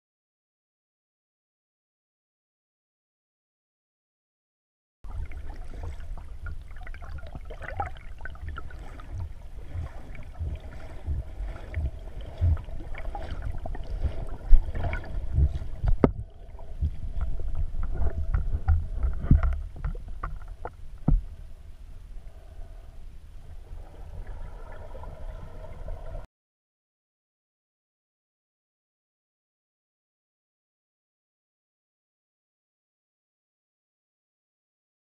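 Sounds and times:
dog paddling sloshes and knocks: 5.1 - 21.2
underwater water rumble: 5.1 - 26.3.

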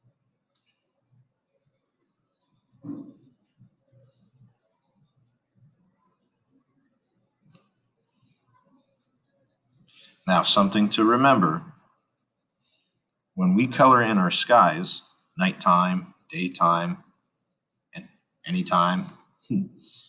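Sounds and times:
marker scratching on paper: 0.5 - 19.3.

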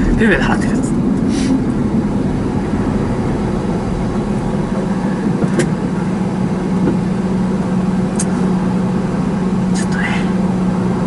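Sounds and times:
vehicle engine idling: 0.0 - 11.0.

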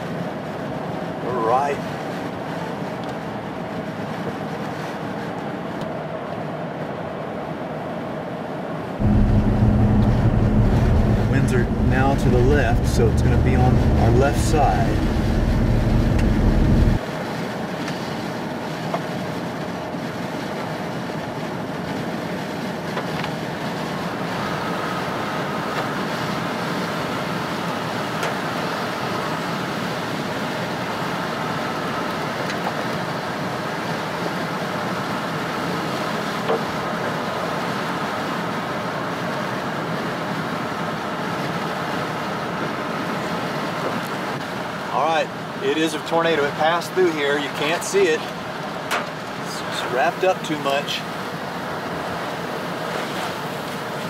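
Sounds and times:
rain and wind on car: 0.0 - 54.0
heavy low rumble: 9.0 - 17.0
tyres hissing on wet road: 9.0 - 54.0.

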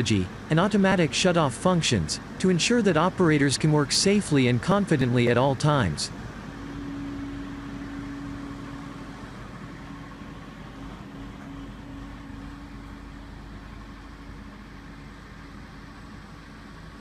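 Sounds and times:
crane engine running: 0.0 - 17.0.

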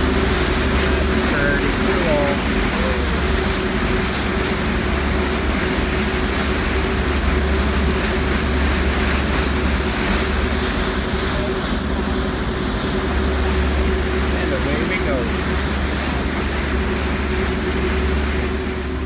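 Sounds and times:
churning propeller wash: 0.0 - 19.0
ferry engines rumbling: 0.0 - 19.0.

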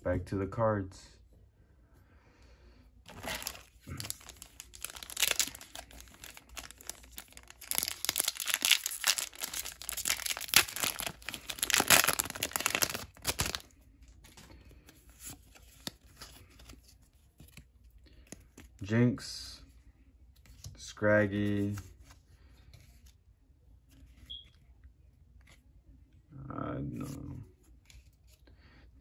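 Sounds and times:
foil wrapper crinkling and tearing: 3.1 - 13.7
cards rustling: 3.1 - 18.9, 20.3 - 23.2.

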